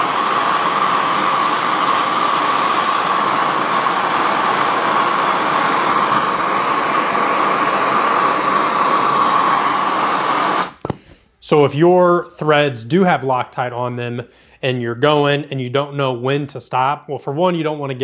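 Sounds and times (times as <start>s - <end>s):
gas torch hissing: 0.0s - 11.3s.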